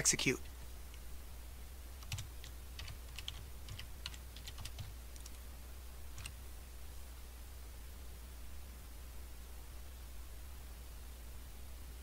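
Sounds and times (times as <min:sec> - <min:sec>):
faint low hum: 0:00.0 - 0:12.0
computer keyboard typing: 0:02.0 - 0:05.4, 0:06.1 - 0:06.4.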